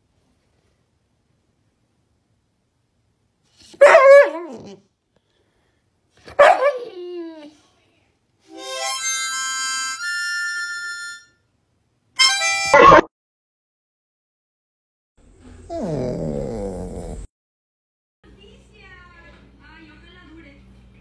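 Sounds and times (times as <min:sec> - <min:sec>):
harmonica chords: 0:08.5 - 0:11.4, 0:12.2 - 0:12.9
dog howling: 0:15.7 - 0:17.3.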